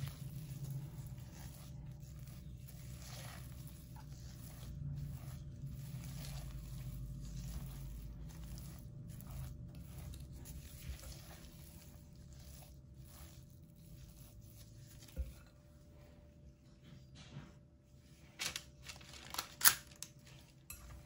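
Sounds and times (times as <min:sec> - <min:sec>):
spatula scraping glass bowl: 0:00.0 - 0:15.6
spatula mashing thick mixture: 0:00.0 - 0:16.2.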